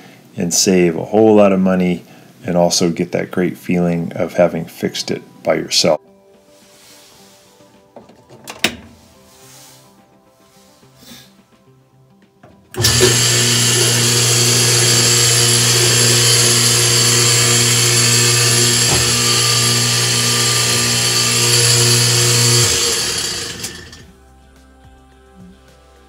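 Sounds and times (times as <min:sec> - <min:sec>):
washing machine motor whirring: 0:12.7 - 0:24.1.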